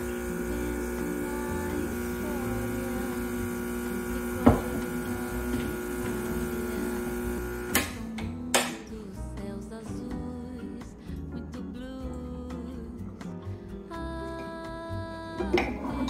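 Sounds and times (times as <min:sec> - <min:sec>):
espresso machine pump humming: 0:00.0 - 0:08.0.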